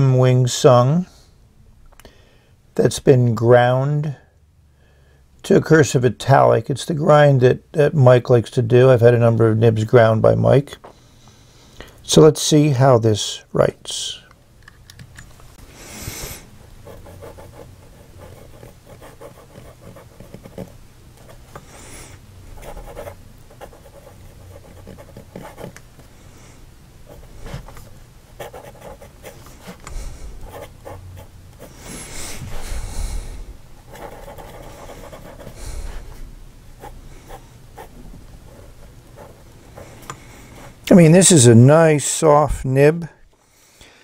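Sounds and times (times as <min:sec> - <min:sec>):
pen scratching on paper: 0:16.1 - 0:21.4, 0:22.6 - 0:25.8, 0:28.4 - 0:29.8, 0:30.4 - 0:31.7, 0:33.8 - 0:36.0.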